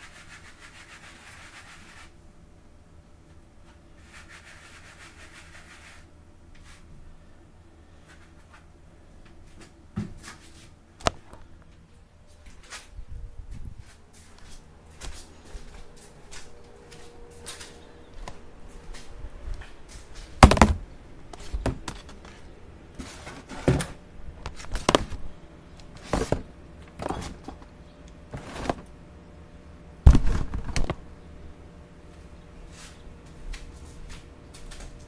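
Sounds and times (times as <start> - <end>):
knocks and clunks of handling: 20.4 - 22.4, 25.9 - 27.7, 28.3 - 28.9.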